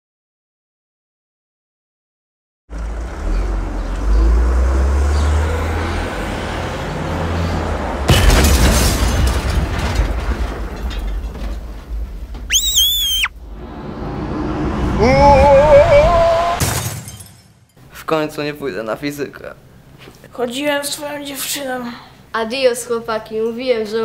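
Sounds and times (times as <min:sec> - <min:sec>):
low engine and traffic rumble: 0:02.7 - 0:09.0
loud crash and blast: 0:08.1 - 0:12.4, 0:16.6 - 0:17.6
crackling debris: 0:08.1 - 0:13.1
brief high wavering tone: 0:12.5 - 0:13.3.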